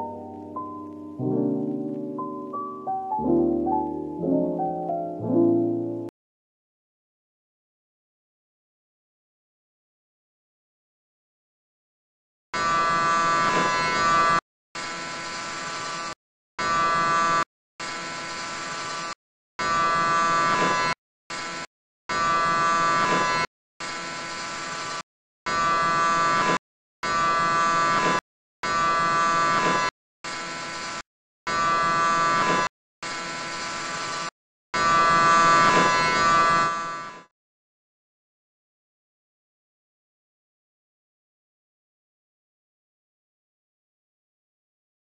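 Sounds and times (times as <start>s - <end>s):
electric hair clippers buzzing: 12.6s - 37.3s.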